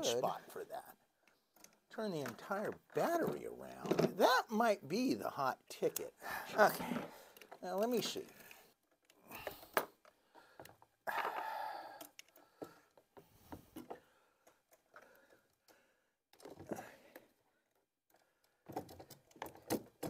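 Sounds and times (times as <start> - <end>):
plastic clicks and knocks: 18.1 - 20.0.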